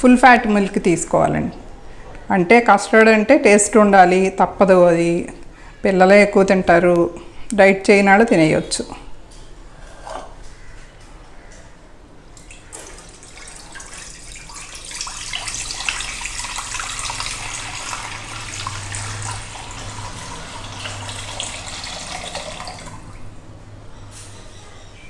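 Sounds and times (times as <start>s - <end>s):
milk pouring into a pan: 12.4s - 23.1s.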